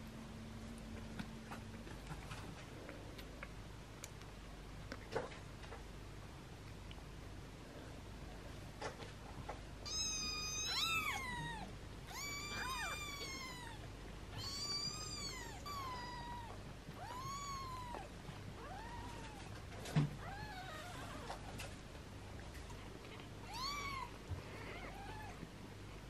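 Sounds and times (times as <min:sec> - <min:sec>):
kittens mewing: 0:09.9 - 0:19.5.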